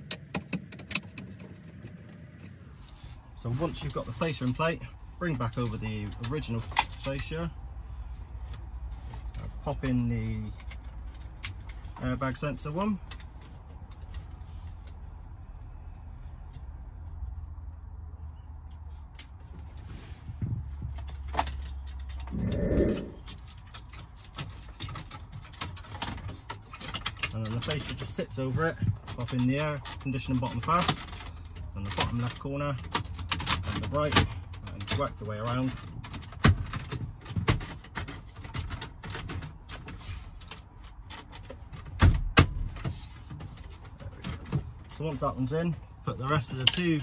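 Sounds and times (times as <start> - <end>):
plastic trim clicking and rattling: 28.8 - 45.1.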